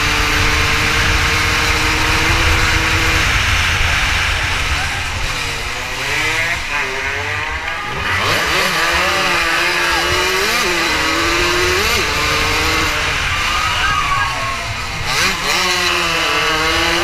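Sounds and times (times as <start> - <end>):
wind rushing on microphone: 0.0 - 6.7
motorcycle engine running hard: 0.0 - 17.0.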